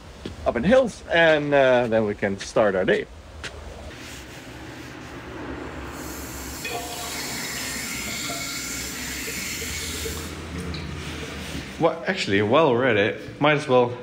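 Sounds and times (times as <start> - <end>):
tap water streaming into sink: 9.2 - 10.9.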